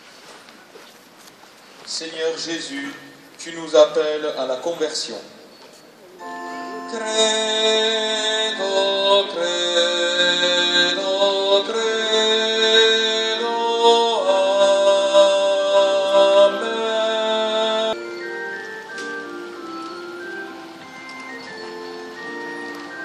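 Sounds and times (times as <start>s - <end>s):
hymn with long held chords: 6.2s - 23.0s.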